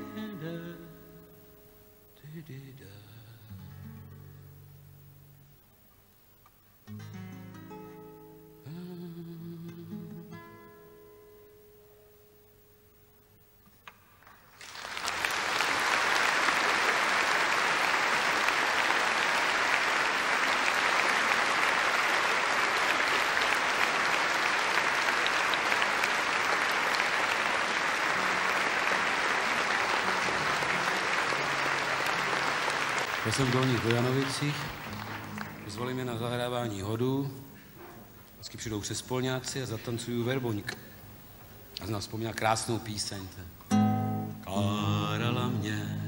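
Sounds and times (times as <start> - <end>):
audience applause: 14.2 - 36.4
guitar notes ringing: 43.7 - 44.5.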